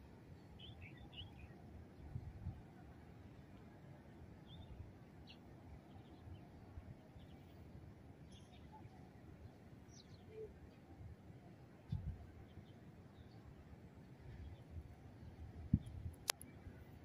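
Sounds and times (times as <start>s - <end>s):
faint bird chirps: 8.3s - 10.9s.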